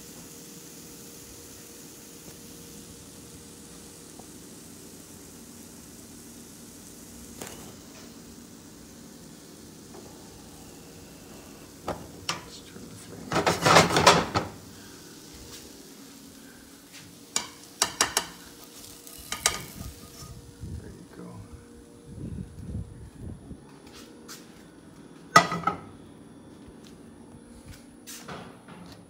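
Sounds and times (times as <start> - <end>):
food sizzling in oil: 0.0 - 20.8
scraping and clattering against pan: 13.3 - 14.6
cookware clicks and knocks: 25.4 - 25.8.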